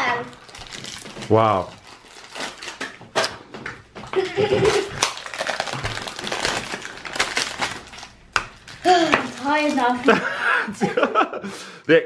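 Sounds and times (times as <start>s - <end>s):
foil wrappers crinkling: 0.2s - 3.4s, 4.2s - 10.2s.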